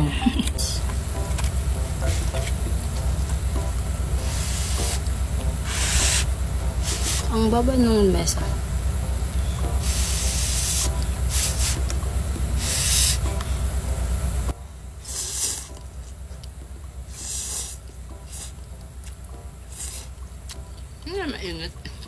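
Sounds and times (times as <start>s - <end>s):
steady low hum: 0.0s - 22.0s
noodles being slurped: 15.0s - 15.8s.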